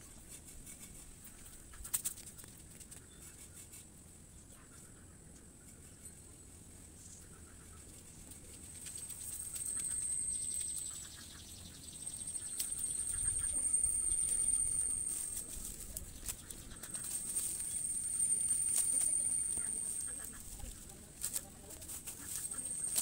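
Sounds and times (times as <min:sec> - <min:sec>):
sticks rustling and clicking: 0:12.1 - 0:23.0.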